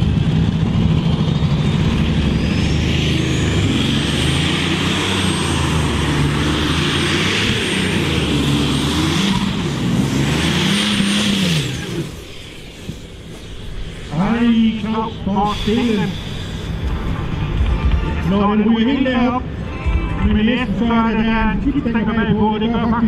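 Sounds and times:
high engine whine: 0.0s - 23.0s
tractor engine at full throttle: 0.0s - 23.0s.

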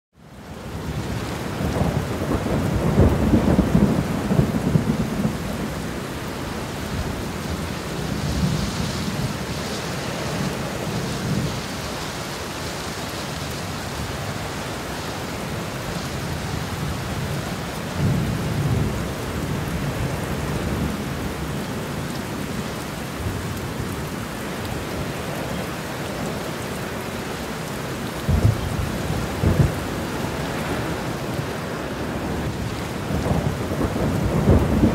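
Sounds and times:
steady rain: 0.1s - 34.9s
rolling thunder: 1.0s - 5.9s, 28.2s - 34.9s
thunder clap: 28.2s - 29.9s.

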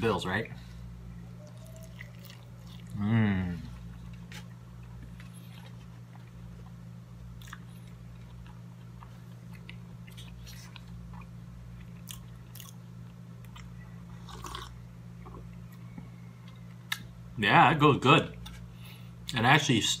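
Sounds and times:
steady low hum: 0.0s - 20.0s
person chewing: 1.4s - 15.8s.

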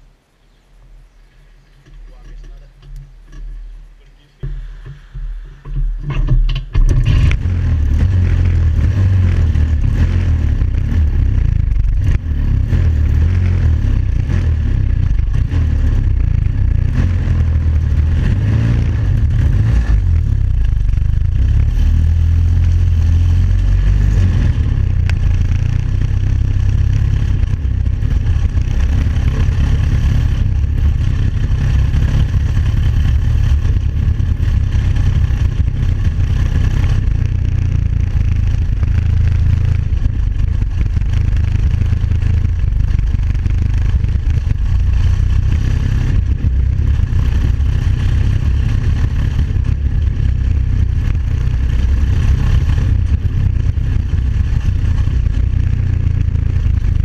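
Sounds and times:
buggy engine running: 1.6s - 57.0s.

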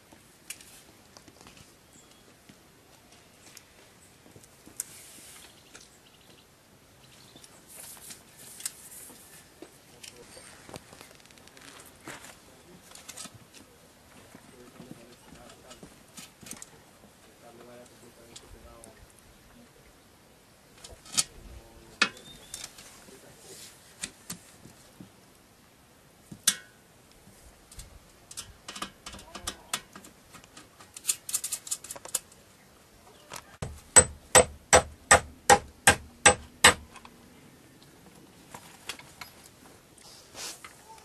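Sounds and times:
tools knocking and clicking: 33.6s - 37.0s.

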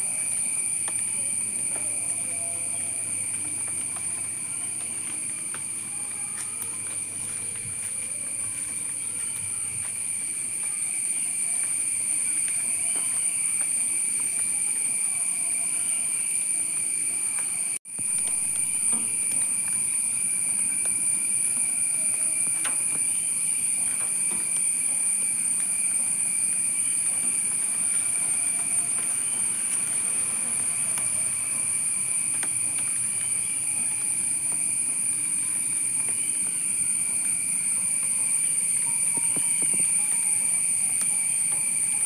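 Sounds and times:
high-pitched insect drone: 0.0s - 42.0s.

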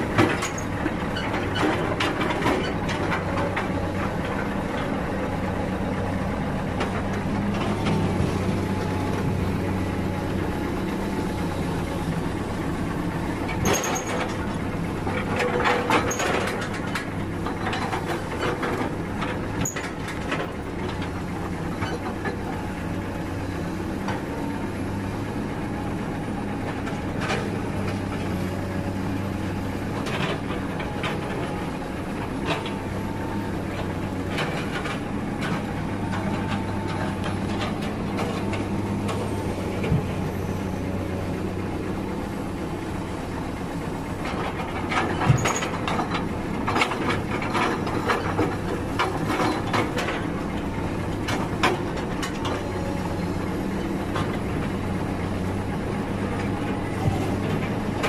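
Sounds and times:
diesel engine idling: 0.0s - 58.0s
knocks and clatters: 44.2s - 50.2s.

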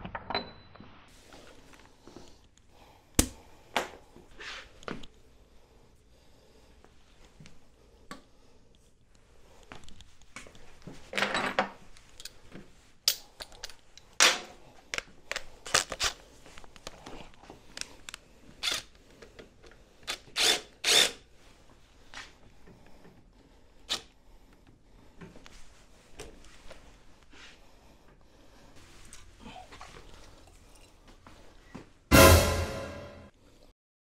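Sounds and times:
cordless drill running: 20.4s - 21.2s.

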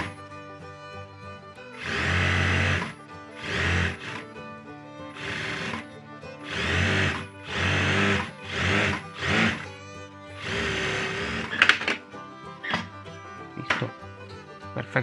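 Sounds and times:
background music: 0.0s - 15.0s
sharp clicks: 1.8s - 4.3s, 5.2s - 9.7s
sewing machine stitching: 1.8s - 4.4s, 5.1s - 9.8s, 10.4s - 12.0s.

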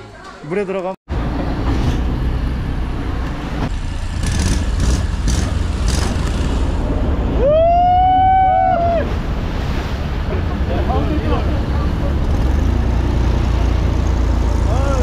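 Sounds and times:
loud low engine rumble: 1.1s - 7.4s, 9.1s - 15.0s.

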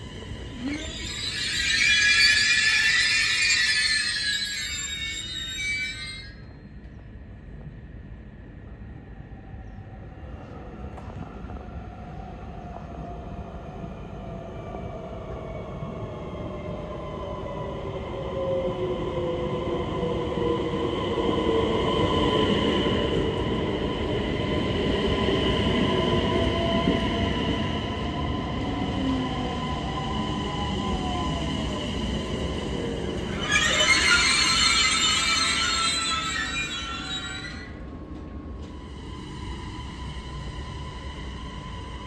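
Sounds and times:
train motors whining: 0.3s - 6.3s, 33.2s - 39.7s.

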